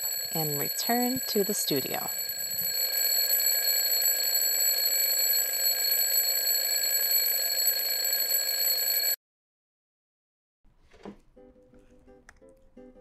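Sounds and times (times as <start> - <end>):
alarm clock ringing: 0.0 - 9.2.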